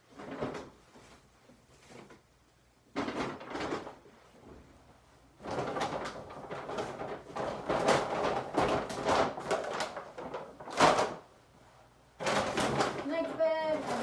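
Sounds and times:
paper bags rustling and crinkling: 0:02.9 - 0:04.6, 0:05.3 - 0:11.3, 0:12.2 - 0:14.0.

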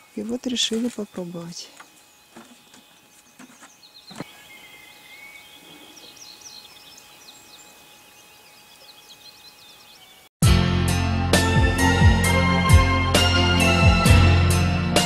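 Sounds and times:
small birds chirping: 0:00.0 - 0:10.3
steady outdoor hiss: 0:00.0 - 0:10.3.

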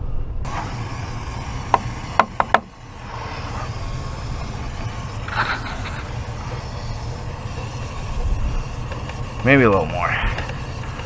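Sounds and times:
truck engine idling: 0:00.4 - 0:11.0
aerosol spray hiss: 0:00.5 - 0:11.0
sharp clicks: 0:08.7 - 0:11.0.

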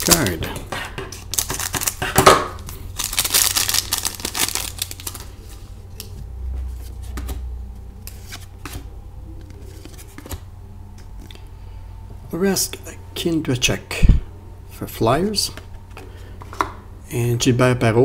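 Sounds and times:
card pack wrapper crinkling and tearing: 0:00.0 - 0:00.4, 0:01.2 - 0:05.6.

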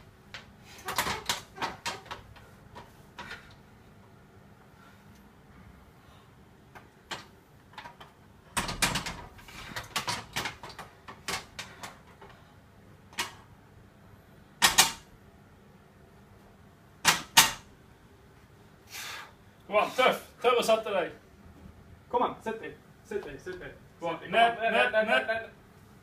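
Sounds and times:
barbell and rack clicking: 0:00.3 - 0:03.6
woman breathing sharply: 0:18.9 - 0:19.4.

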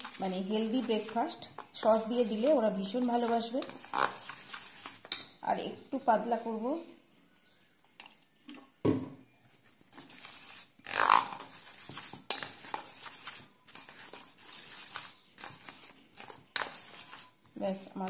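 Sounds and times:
spoon stirring batter in bowl: 0:00.0 - 0:05.4, 0:09.6 - 0:18.0.

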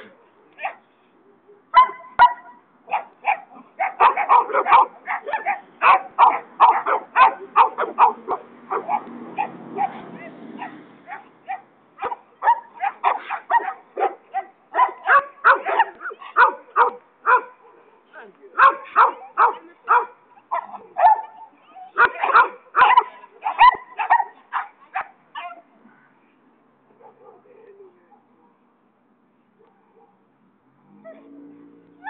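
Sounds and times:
dogs barking rapidly: 0:01.8 - 0:17.8, 0:18.6 - 0:25.6.

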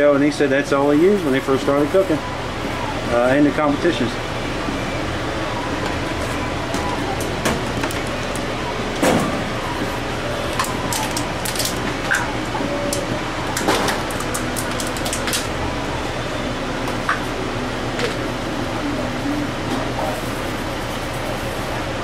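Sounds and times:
steady machine hum: 0:00.0 - 0:22.0.

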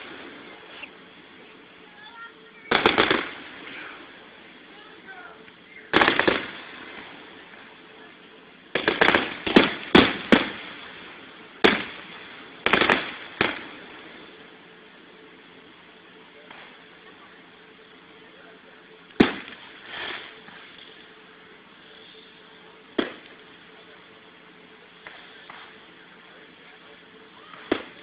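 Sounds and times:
fireworks bangs: 0:00.0 - 0:14.5, 0:19.1 - 0:20.8, 0:22.9 - 0:24.0, 0:24.9 - 0:26.0, 0:26.6 - 0:28.0.

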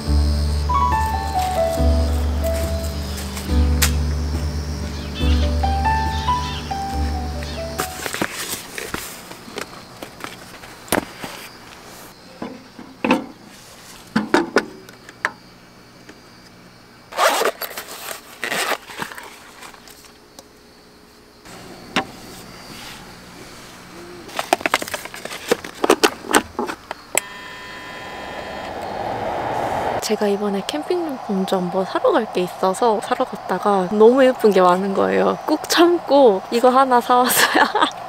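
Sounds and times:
camping gear rustling and knocking: 0:07.7 - 0:11.6, 0:24.3 - 0:27.0.

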